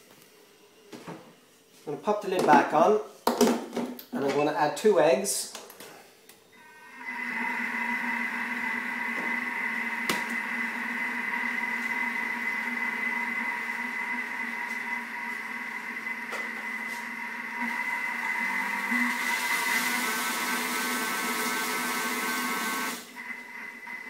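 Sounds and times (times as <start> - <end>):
food processor motor whine: 6.6 - 24.0.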